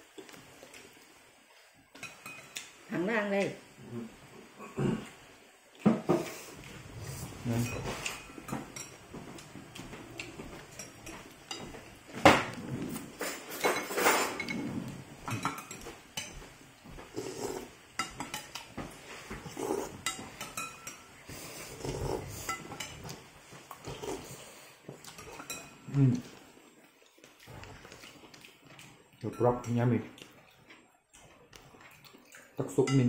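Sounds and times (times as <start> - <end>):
spoon and chopsticks clinking on bowl: 2.0 - 2.7, 10.7 - 11.8, 15.2 - 16.4, 18.0 - 18.7, 20.0 - 21.2, 22.4 - 23.1, 29.2 - 29.9.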